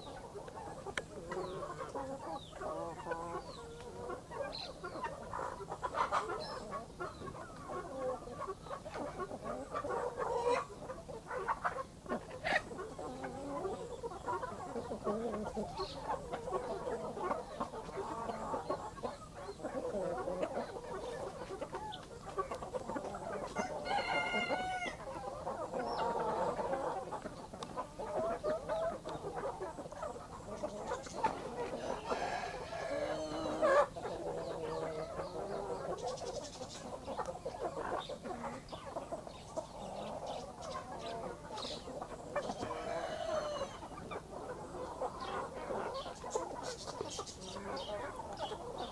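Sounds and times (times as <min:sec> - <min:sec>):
hens clucking: 0:00.0 - 0:48.9
rooster crowing: 0:23.6 - 0:25.0, 0:31.8 - 0:33.8, 0:42.6 - 0:43.9.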